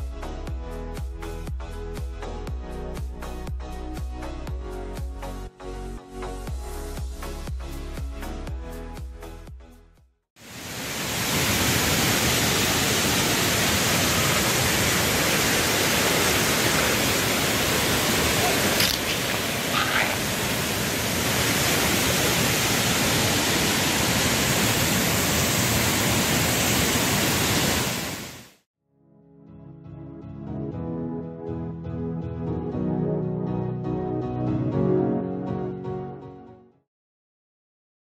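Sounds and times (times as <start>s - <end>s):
waterfall rushing: 10.4s - 28.5s.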